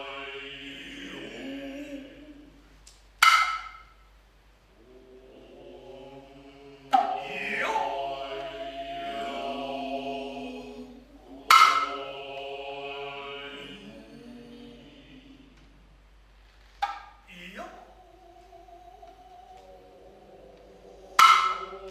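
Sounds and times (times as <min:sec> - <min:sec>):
drawn-out vocal calls: 0:04.7 - 0:15.8, 0:17.3 - 0:21.9.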